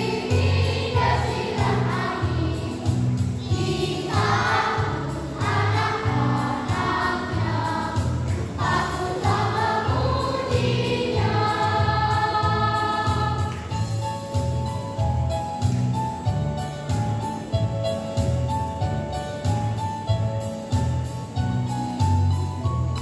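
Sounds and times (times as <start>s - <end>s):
children's choir singing: 0.0s - 13.9s.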